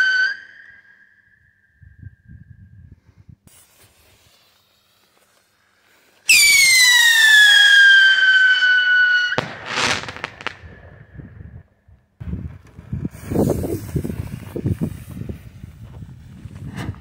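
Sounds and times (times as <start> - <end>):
whistling firework shriek: 0.0 - 2.2, 3.5 - 5.6, 6.2 - 11.3
short firework cracks: 6.3 - 11.3
firework bang: 9.3 - 11.5.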